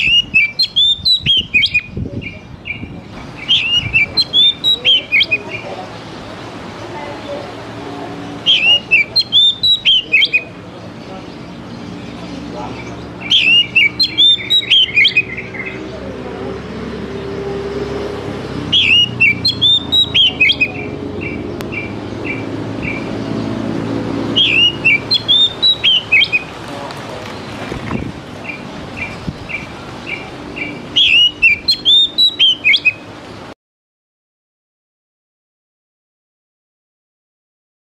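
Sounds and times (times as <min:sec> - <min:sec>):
bird singing whistled phrases: 0:00.0 - 0:05.7, 0:08.4 - 0:10.6, 0:13.2 - 0:15.8, 0:18.7 - 0:23.1, 0:24.3 - 0:26.5, 0:28.5 - 0:33.0.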